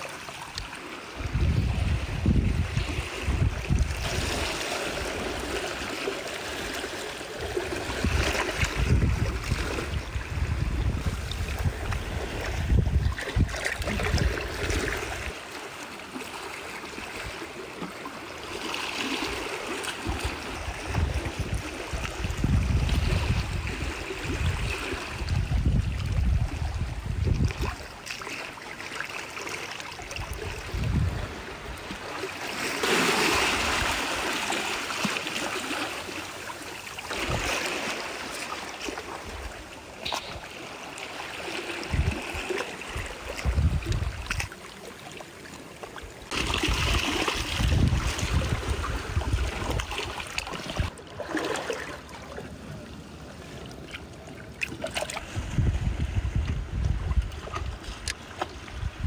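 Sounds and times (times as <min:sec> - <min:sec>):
seawater sloshing around rocks: 0:00.0 - 0:59.0
wind rumble on microphone: 0:01.2 - 0:05.5, 0:07.4 - 0:15.3, 0:20.0 - 0:28.0, 0:30.1 - 0:32.1, 0:37.2 - 0:37.6, 0:41.8 - 0:44.5, 0:46.3 - 0:51.0, 0:55.1 - 0:59.0.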